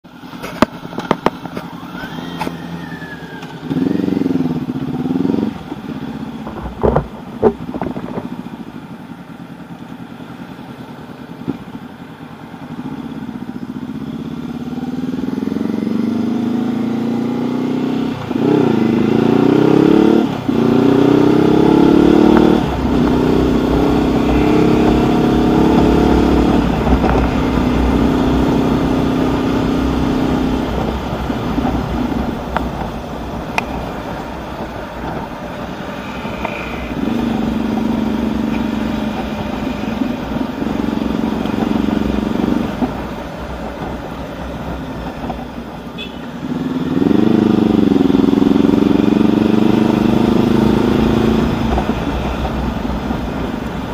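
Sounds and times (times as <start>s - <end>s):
motorcycle engine idling and revving: 0.0s - 53.9s
motorcycle accelerating through gears: 0.1s - 53.9s
low wind rumble: 17.9s - 53.9s.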